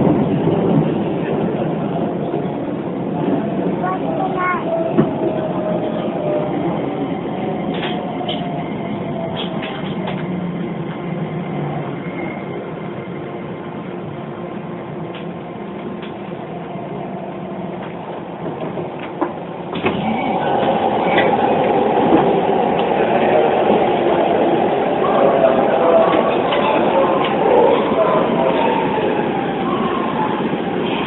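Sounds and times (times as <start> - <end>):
wheel-on-rail noise: 15.0 - 31.0.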